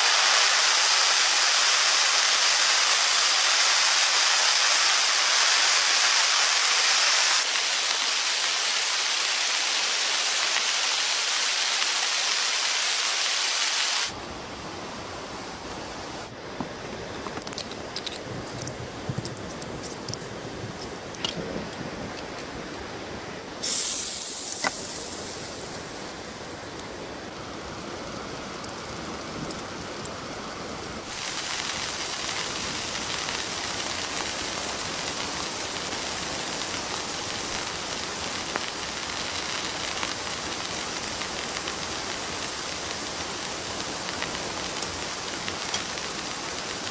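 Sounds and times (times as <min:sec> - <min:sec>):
steady rain: 0:00.0 - 0:46.9
sudden high hiss: 0:23.6 - 0:27.2.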